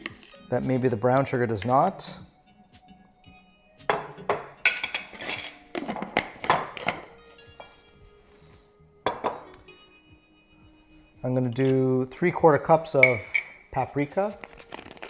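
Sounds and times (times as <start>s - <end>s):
background music: 0.0s - 15.0s
spoon and metal cup clinking: 3.9s - 5.8s, 13.0s - 13.6s.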